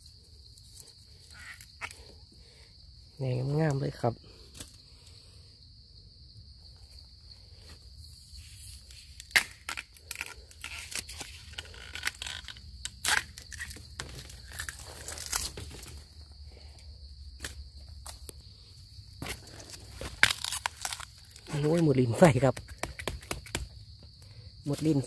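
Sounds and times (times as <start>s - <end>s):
insect drone: 0.0s - 25.0s
bamboo leaves crackling underfoot: 7.6s - 16.3s, 17.4s - 23.6s.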